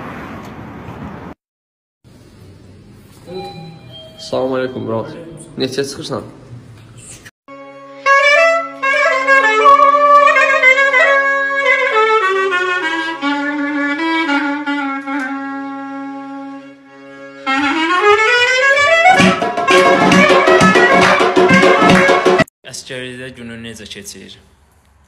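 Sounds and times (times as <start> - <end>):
reedy wind instrument melody: 7.5 - 22.5.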